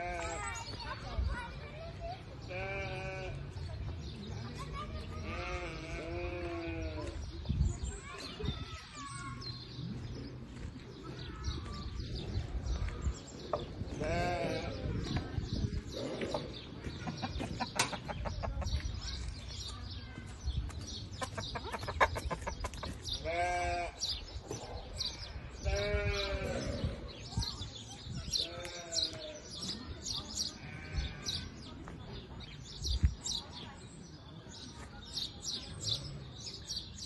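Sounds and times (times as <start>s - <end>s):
livestock bleating: 2.5s - 3.4s, 5.2s - 7.1s, 13.9s - 14.8s, 23.2s - 24.0s, 25.6s - 26.9s.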